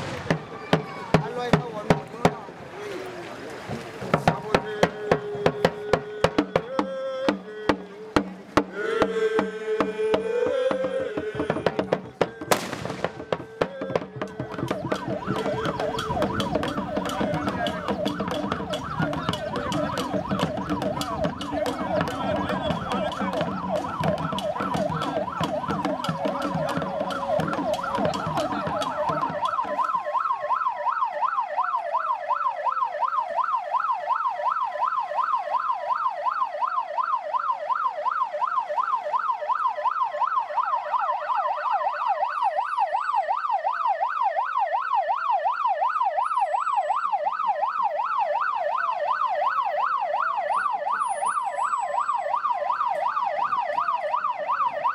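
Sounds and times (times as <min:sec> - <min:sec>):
siren wailing: 0:04.2 - 0:54.9
siren yelping: 0:04.3 - 0:54.9.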